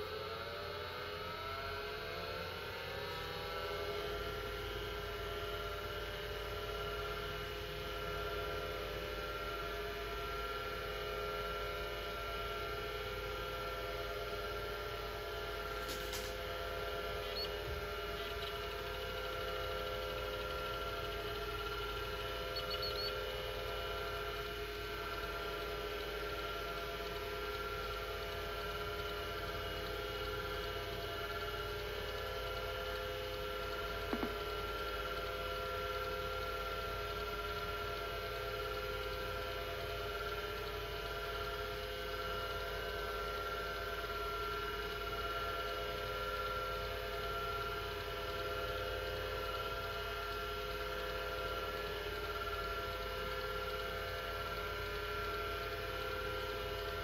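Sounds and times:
hard disk drive whine: 0.0s - 57.0s
hard disk click: 34.1s - 34.5s.

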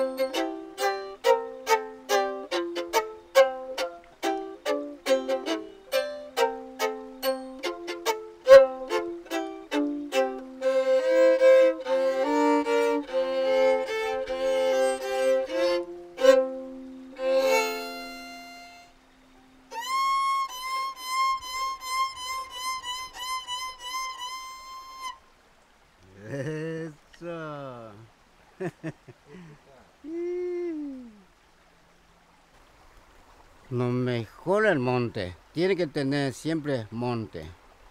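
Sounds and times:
solo violin: 0.0s - 25.4s.

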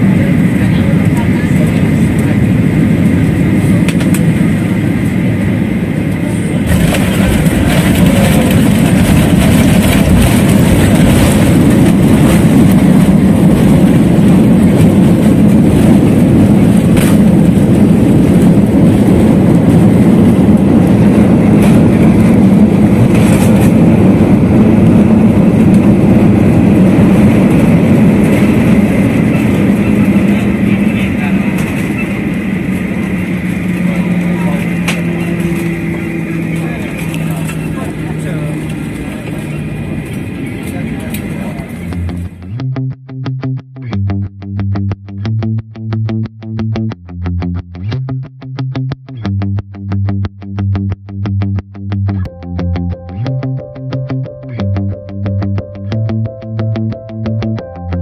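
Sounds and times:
jet engine roar: 0.0s - 42.6s.

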